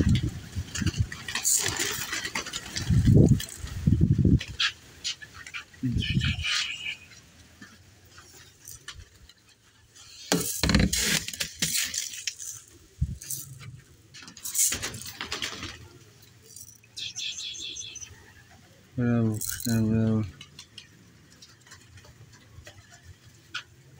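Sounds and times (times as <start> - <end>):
clinking and rattling handling: 10.3 - 15.2, 16.4 - 16.8, 19.4 - 19.9.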